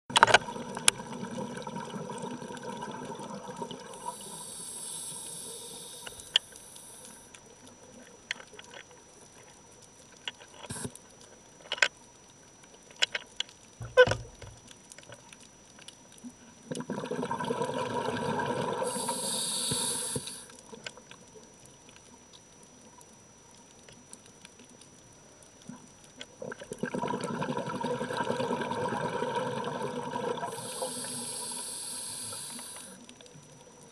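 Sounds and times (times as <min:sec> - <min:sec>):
regulator hiss: 0:03.9 - 0:07.4, 0:10.6 - 0:11.0, 0:18.8 - 0:20.7, 0:30.3 - 0:33.2
bubbling underwater exhalations: 0:16.7 - 0:20.4, 0:26.4 - 0:33.0.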